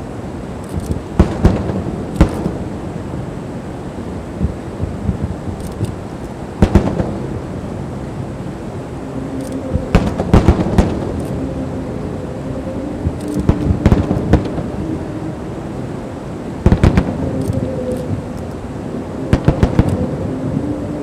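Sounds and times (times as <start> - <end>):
fireworks bursting: 0.8 - 2.7, 6.6 - 7.4, 9.8 - 11.2, 16.6 - 18.2, 19.3 - 20.0.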